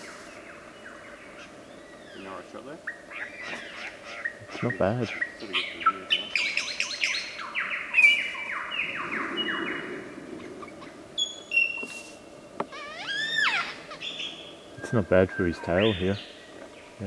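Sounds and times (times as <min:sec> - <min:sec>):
lyrebird whistled calls: 0:02.8 - 0:09.9, 0:12.7 - 0:16.3.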